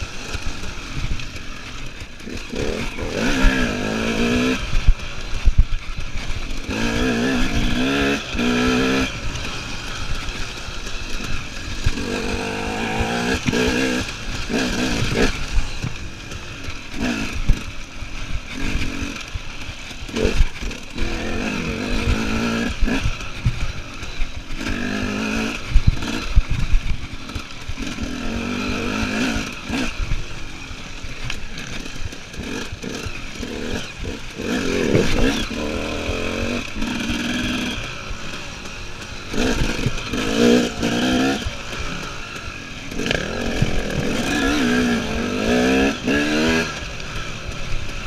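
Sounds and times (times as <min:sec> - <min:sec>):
motorcycle engine revving: 0:00.0 - 0:48.0
motorcycle knocks and clatter: 0:02.2 - 0:21.2, 0:31.2 - 0:42.2.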